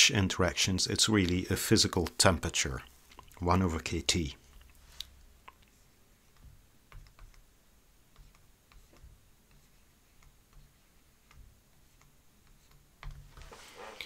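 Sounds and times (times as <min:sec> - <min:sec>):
stylus tapping on a tablet: 0:06.3 - 0:07.5, 0:08.1 - 0:13.4.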